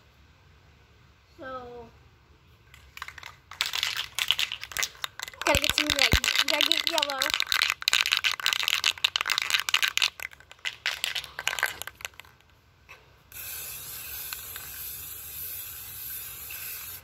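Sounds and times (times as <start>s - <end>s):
spray can ball rattling: 2.7s - 12.6s, 13.3s - 17.0s
spray paint hissing: 3.0s - 12.4s, 13.3s - 17.0s.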